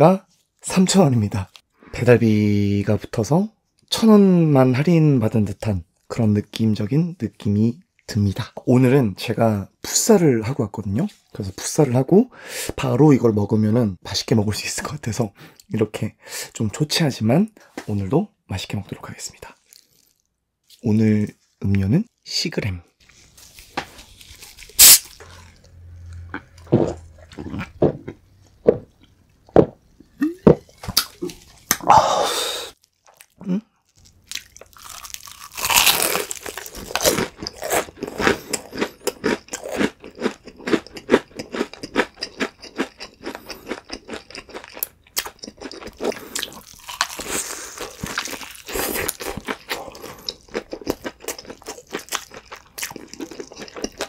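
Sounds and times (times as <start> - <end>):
crunchy chewing: 23.1 - 29.0, 32.7 - 54.0.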